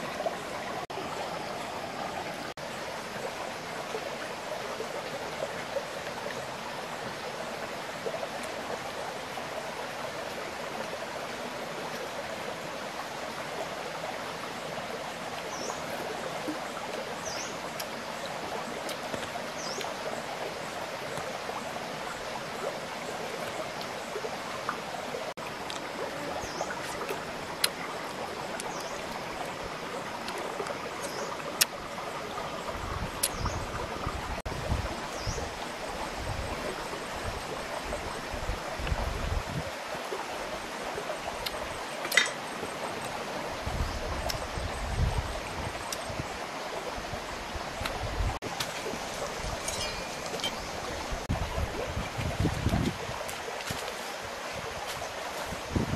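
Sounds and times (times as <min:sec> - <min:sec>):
rocky creek flowing: 0:00.0 - 0:55.9.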